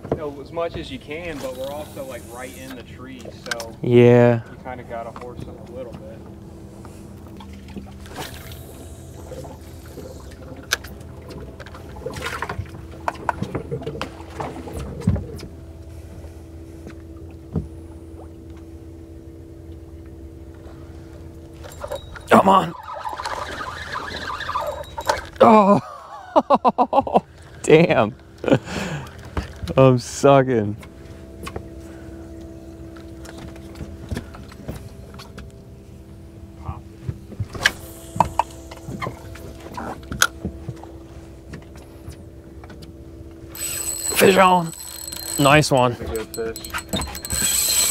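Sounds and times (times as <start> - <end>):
boat motor running: 0.0 - 47.9
steady low hum: 0.0 - 47.9
fishing reel clicks and knocks: 43.5 - 47.9.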